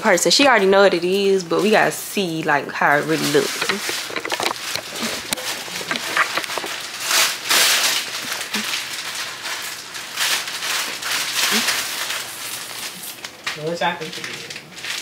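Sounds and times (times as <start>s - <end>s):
packaging rustling: 2.9s - 15.0s.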